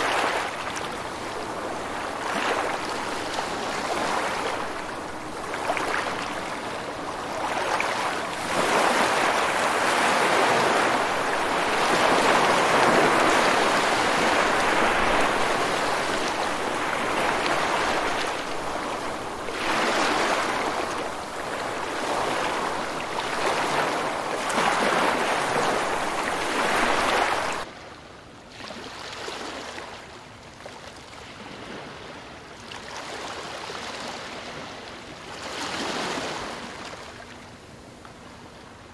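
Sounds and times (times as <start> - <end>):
ocean waves washing: 0.0 - 27.7.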